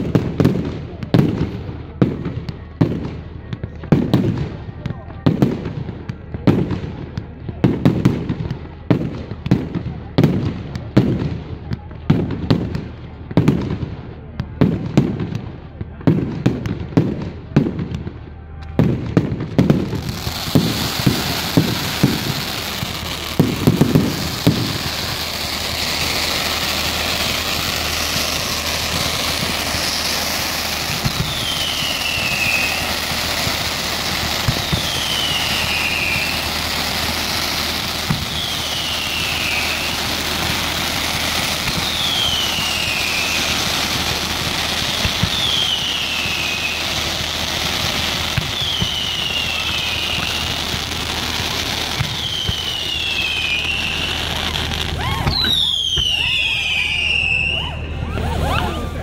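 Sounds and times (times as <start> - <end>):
fireworks banging: 0.0 - 59.0
fireworks crackling and hissing: 0.0 - 59.0
falling whistle: 31.2 - 32.9, 34.7 - 36.5, 38.3 - 40.0, 48.6 - 50.5, 52.1 - 54.2, 55.0 - 59.0.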